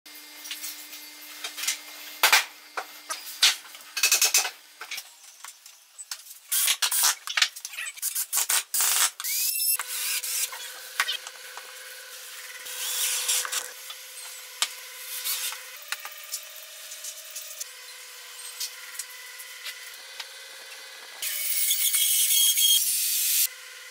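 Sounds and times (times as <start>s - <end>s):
drill driving screws: 6.5s - 7.2s, 8.0s - 17.6s, 21.2s - 23.5s.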